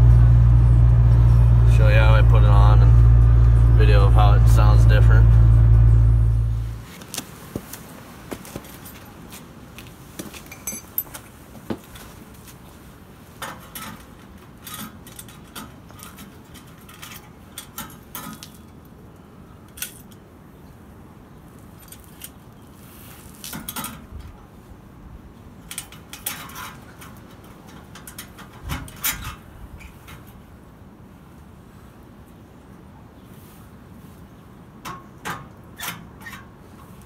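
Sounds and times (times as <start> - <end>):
metal clinks and scrapes: 10.2 - 12.2, 13.4 - 18.8, 25.6 - 30.3.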